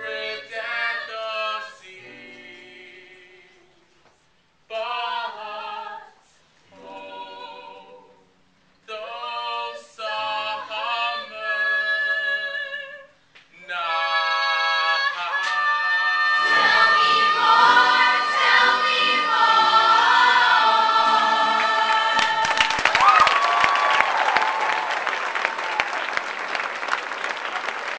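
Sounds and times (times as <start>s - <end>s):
group of singers in chorus: 0.0s - 3.9s, 4.7s - 8.3s, 8.9s - 22.9s
audience applause: 21.6s - 27.9s.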